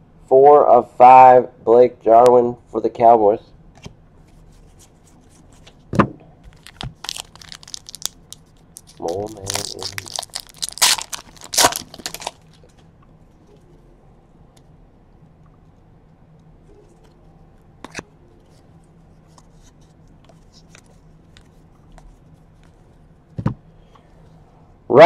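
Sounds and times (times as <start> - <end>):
foil pack tearing and crinkling: 6.5 - 8.2, 8.8 - 12.5.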